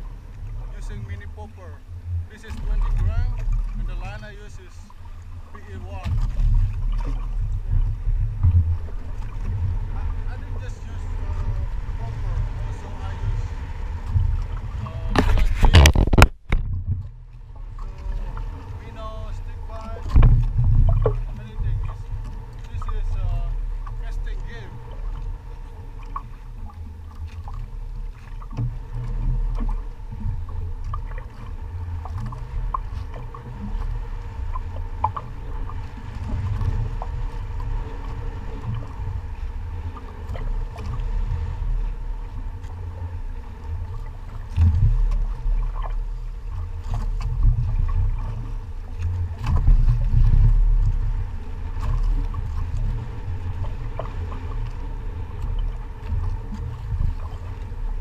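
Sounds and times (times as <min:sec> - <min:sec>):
water moving around boat: 0:00.0 - 0:58.0
wind buffeting microphone: 0:00.0 - 0:58.0.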